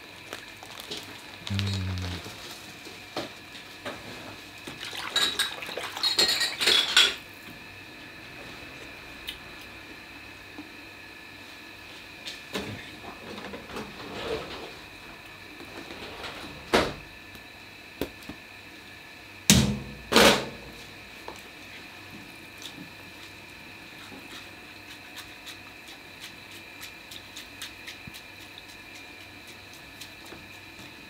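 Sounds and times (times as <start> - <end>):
hands mixing food in plastic tub: 0.0 - 2.7, 22.6 - 31.0
steady high hum: 1.3 - 2.8.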